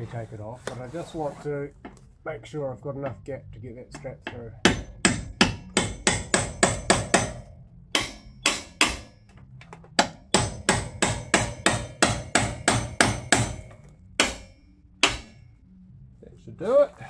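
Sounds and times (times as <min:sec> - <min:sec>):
hammer striking steel channel: 0:04.0 - 0:09.4, 0:10.0 - 0:15.6.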